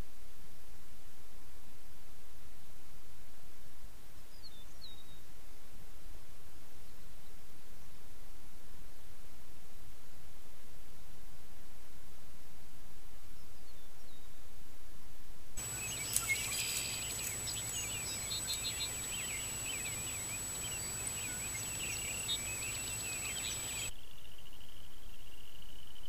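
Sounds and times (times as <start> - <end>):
faint low hum: 0.0 - 26.0
steady hiss: 15.6 - 24.2
birds singing and chirping: 15.6 - 26.0.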